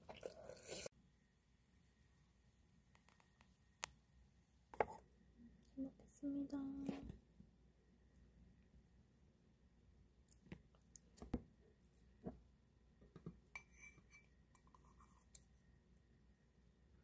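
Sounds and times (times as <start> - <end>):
light ringing clink: 13.6 - 14.3.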